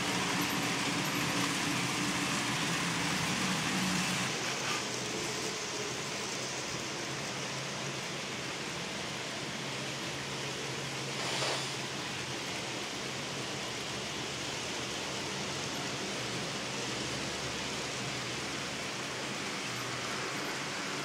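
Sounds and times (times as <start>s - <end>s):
model trains running: 0.0s - 21.0s.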